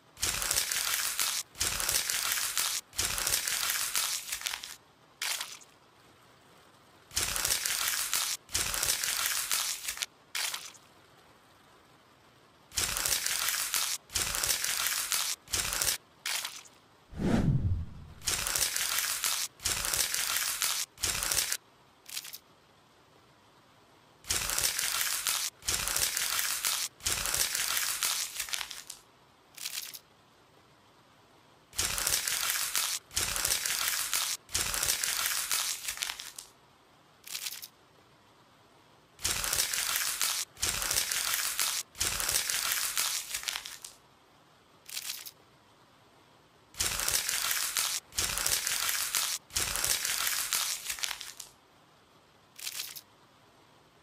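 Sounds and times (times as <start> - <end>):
crunching and crinkling: 0.2 - 5.7, 24.3 - 29.0, 31.8 - 36.5, 39.2 - 44.0, 46.8 - 51.5.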